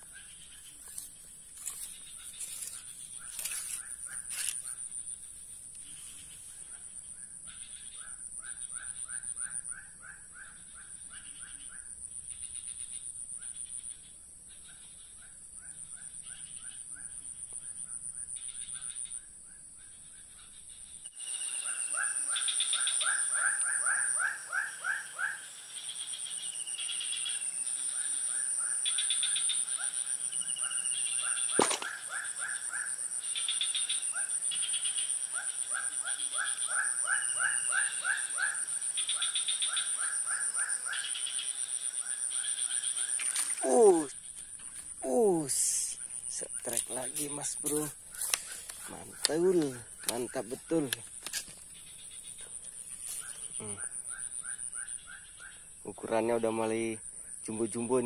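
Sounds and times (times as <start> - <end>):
rapid chirping calls: 0.0 - 5.2, 21.2 - 44.3, 45.0 - 56.9
insect-like drone: 0.0 - 58.0
sharp click: 31.6 - 32.0.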